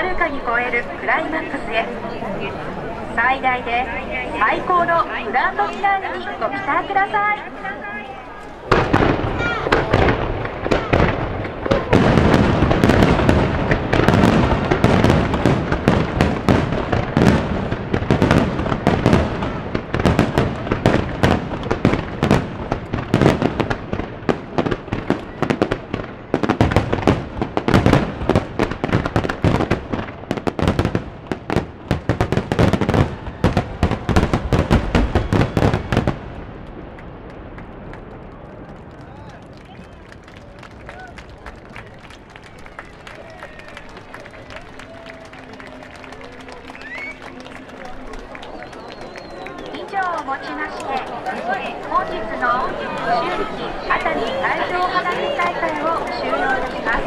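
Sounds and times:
fireworks bursting: 8.4 - 38.2.

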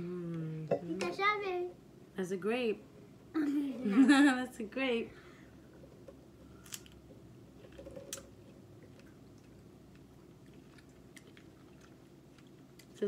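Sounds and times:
faint chewing of fruit: 7.6 - 13.0.

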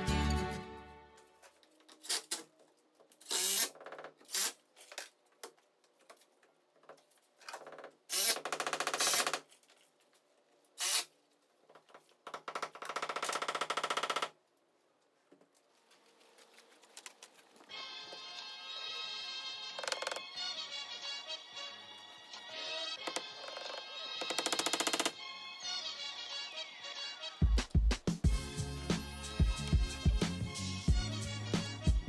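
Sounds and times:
cordless drill driving screws: 3.2 - 4.6, 8.1 - 9.4, 10.8 - 11.1.

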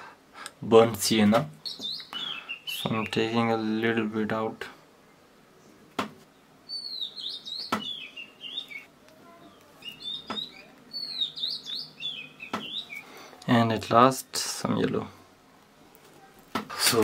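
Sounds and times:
small birds twittering: 1.6 - 4.3, 5.1 - 13.7.

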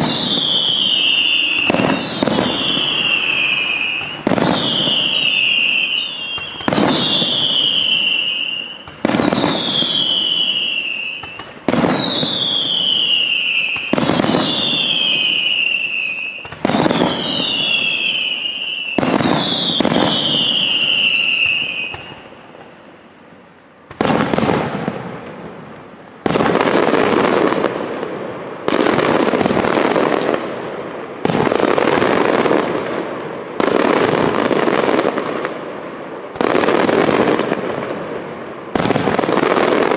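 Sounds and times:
falling whistle: 0.0 - 22.2
firework shells bursting: 0.0 - 22.8
heavy firework bursts: 0.0 - 39.9.

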